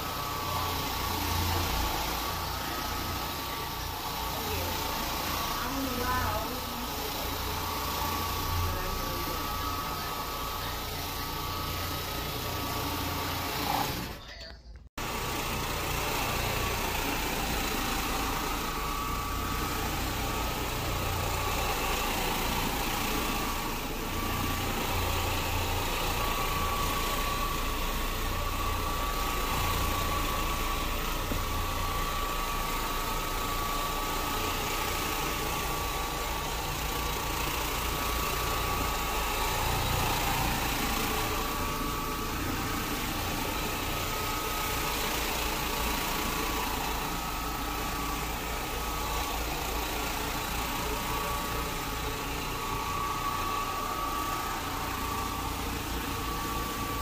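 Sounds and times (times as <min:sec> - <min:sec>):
steam cleaning machine running: 0:00.0 - 0:14.4, 0:15.0 - 0:57.0.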